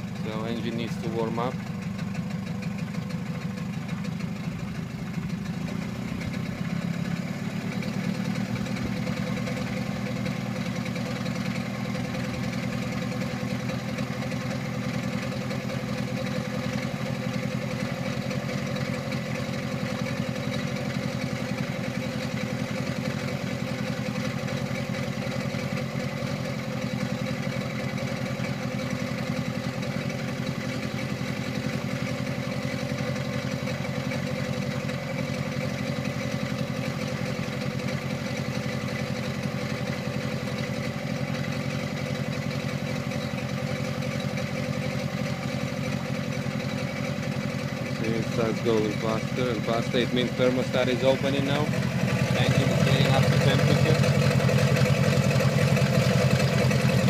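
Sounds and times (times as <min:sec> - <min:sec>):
outboard motor idling: 0:00.0 - 0:57.0.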